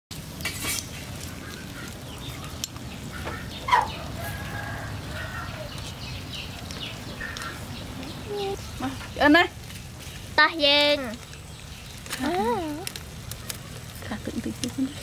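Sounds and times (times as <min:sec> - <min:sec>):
chickens clucking: 0:01.1 - 0:09.3.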